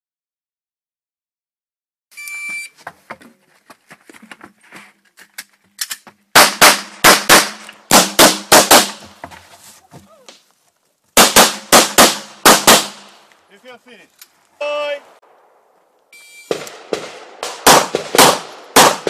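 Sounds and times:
electronic timer beep: 2.2s - 2.7s, 16.1s - 16.5s
loud gunshots: 6.4s - 9.0s, 11.2s - 13.2s, 16.5s - 19.0s.

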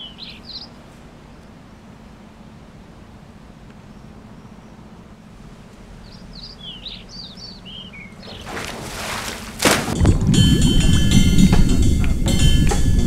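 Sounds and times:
bird chirping: 0.0s - 1.9s, 3.7s - 8.6s
steady low hum: 0.0s - 13.0s
feet splashing through water: 8.1s - 11.7s.

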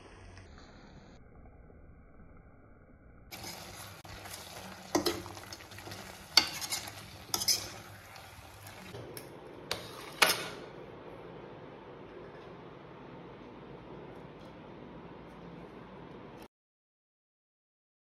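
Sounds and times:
masala sizzling in a pan: 3.3s - 9.0s, 9.7s - 10.8s
spoon scraping a pan: 3.3s - 9.0s, 9.7s - 10.7s.

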